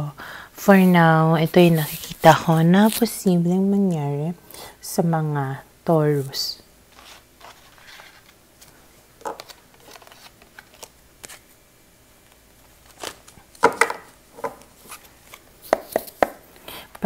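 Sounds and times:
cards tapping and rustling: 7.0 - 11.4, 12.3 - 16.4.

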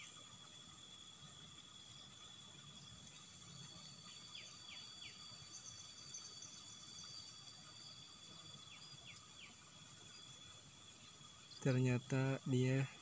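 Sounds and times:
insect drone: 0.0 - 13.0.

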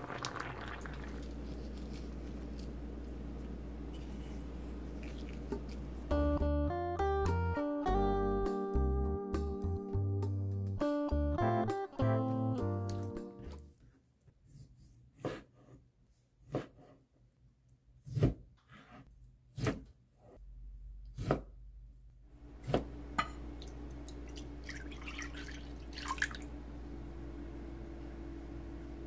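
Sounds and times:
liquid pouring into a bowl: 0.0 - 2.7, 23.6 - 26.5
water dripping: 23.5 - 26.5.

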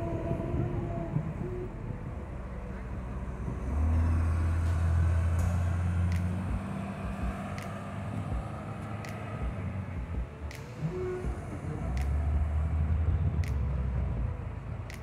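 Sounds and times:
heavy diesel engines droning: 0.0 - 15.0
sharp clicks: 4.6 - 12.5, 13.4 - 14.0.

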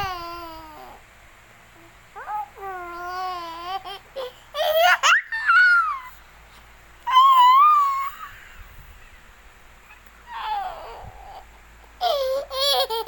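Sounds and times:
toddler squealing and giggling: 2.2 - 6.2, 7.0 - 9.2, 9.9 - 13.0.

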